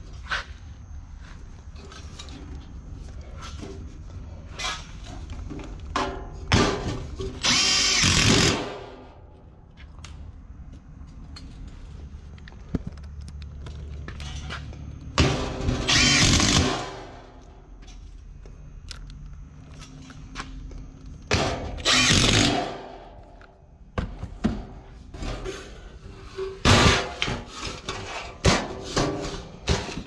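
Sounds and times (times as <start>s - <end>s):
impact driver driving screws: 7.4s - 8.8s, 15.9s - 17.0s, 21.8s - 22.8s.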